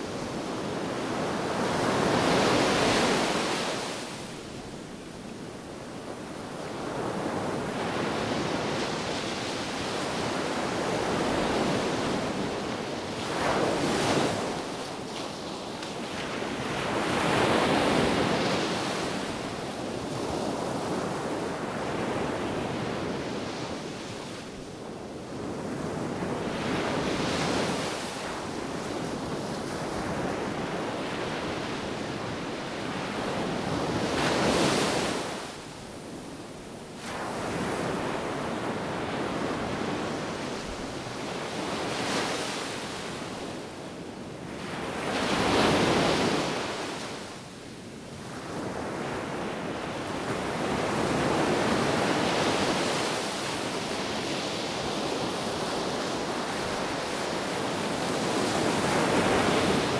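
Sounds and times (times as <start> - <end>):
waves breaking on a beach: 0.0 - 59.9.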